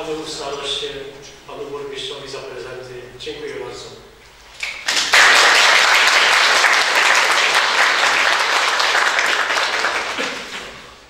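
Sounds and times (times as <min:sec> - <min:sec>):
audience applause: 0:04.8 - 0:11.0.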